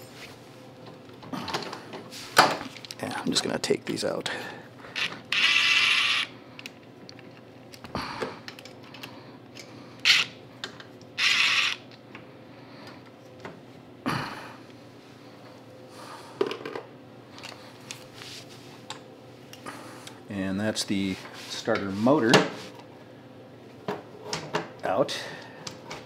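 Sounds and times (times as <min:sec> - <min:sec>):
cordless driver spinning bolts: 0:05.0 - 0:06.3, 0:11.2 - 0:11.8.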